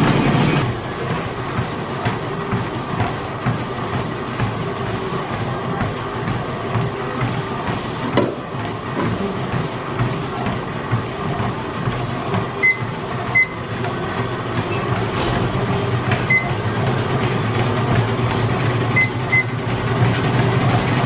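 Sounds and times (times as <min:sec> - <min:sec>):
treadmill motor hum: 0:00.0 - 0:21.0
short electronic beeps: 0:12.6 - 0:13.6, 0:16.3 - 0:16.6, 0:19.0 - 0:19.6.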